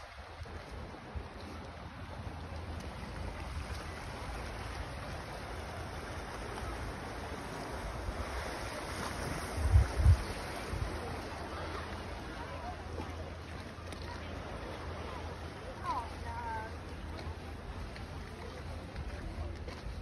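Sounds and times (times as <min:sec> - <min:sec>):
sea surf on rocky shore: 0:00.0 - 0:20.0
wind buffeting microphone: 0:07.4 - 0:11.5.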